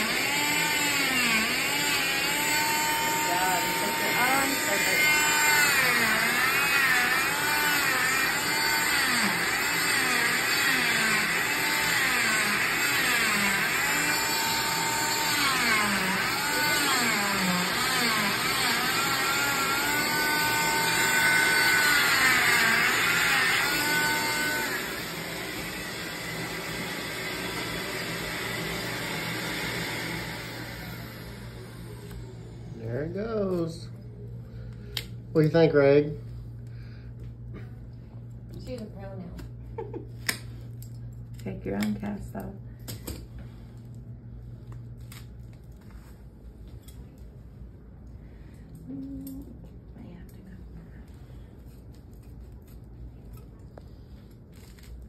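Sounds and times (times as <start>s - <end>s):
cast saw motor whine: 0.0s - 33.9s.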